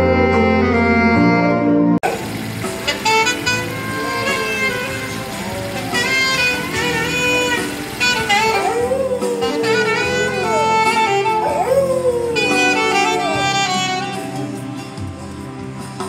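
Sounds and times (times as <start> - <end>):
saxophone melody over backing music: 0.0 - 16.0
dog howling: 3.0 - 14.7.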